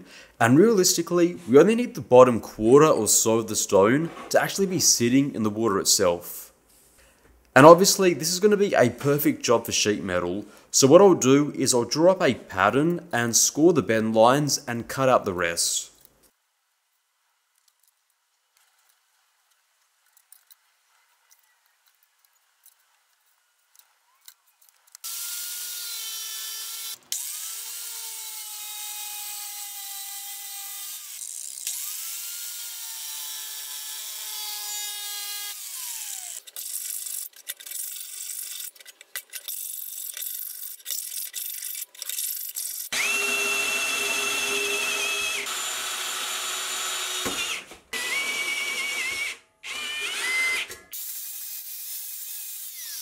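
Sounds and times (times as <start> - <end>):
drill on sheet metal: 25.0 - 37.3, 42.4 - 53.0
angle grinder cutting steel sheet: 25.0 - 38.8, 39.5 - 53.0.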